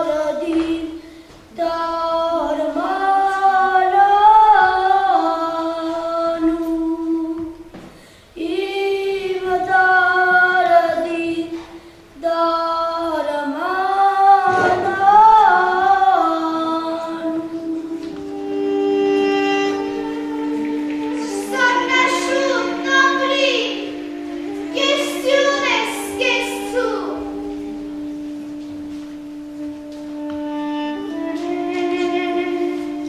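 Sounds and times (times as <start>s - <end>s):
high voice singing: 19.2s - 27.6s.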